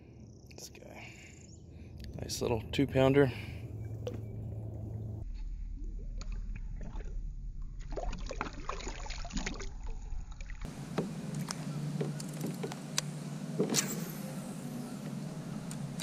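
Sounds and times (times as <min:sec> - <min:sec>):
steady low hum: 0:00.0 - 0:08.8, 0:09.8 - 0:16.0
water splashing and trickling: 0:03.5 - 0:12.7.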